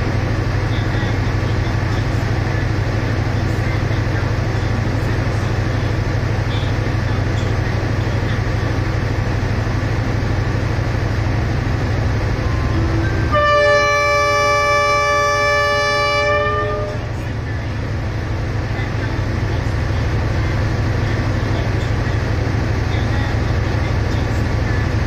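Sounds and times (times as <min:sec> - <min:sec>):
low diesel rumble: 0:00.0 - 0:25.0
locomotive air horn blast: 0:12.4 - 0:17.2.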